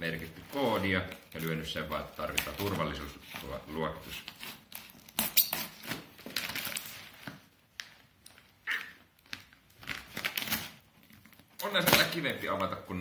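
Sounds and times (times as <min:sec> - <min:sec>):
blade slitting packing tape: 0:04.2 - 0:07.0
plastic pouch crinkling: 0:06.0 - 0:13.0.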